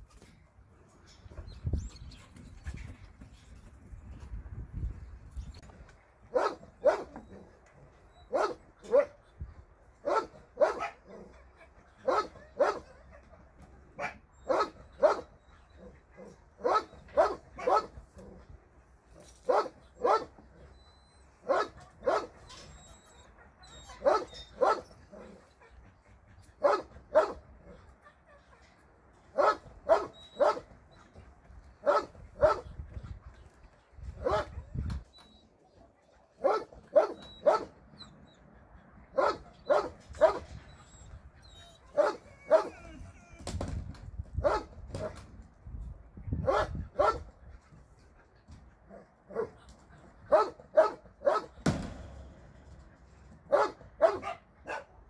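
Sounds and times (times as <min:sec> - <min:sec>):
dog barking: 0:06.3 - 0:07.1, 0:08.3 - 0:09.2, 0:10.0 - 0:11.1, 0:12.0 - 0:12.9, 0:14.0 - 0:15.3, 0:16.6 - 0:17.9, 0:19.5 - 0:20.3, 0:21.5 - 0:22.3, 0:23.9 - 0:24.9, 0:26.6 - 0:27.4, 0:29.4 - 0:30.6, 0:31.8 - 0:32.7, 0:34.2 - 0:34.6, 0:36.4 - 0:37.7, 0:39.2 - 0:40.4, 0:42.0 - 0:42.8, 0:44.4 - 0:45.1, 0:46.4 - 0:47.3, 0:50.3 - 0:51.6, 0:53.5 - 0:54.9.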